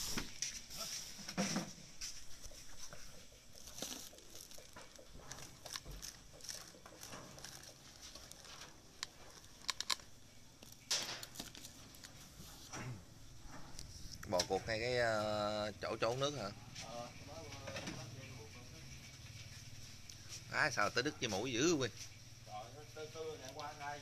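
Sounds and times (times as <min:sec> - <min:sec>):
rustling: 0:00.0 - 0:15.2.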